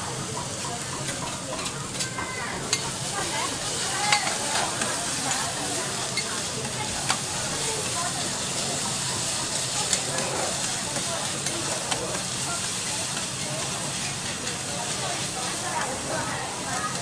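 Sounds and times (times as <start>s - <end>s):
vegetables sizzling on griddle: 0.0s - 17.0s
spatula clinking on metal plate: 1.0s - 3.0s, 4.0s - 5.4s.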